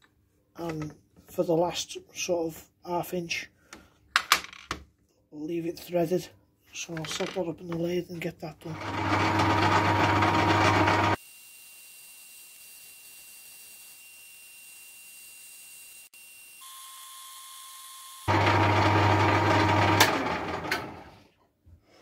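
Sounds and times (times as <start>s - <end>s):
lathe motor humming: 8.8s - 11.2s, 18.3s - 21.2s.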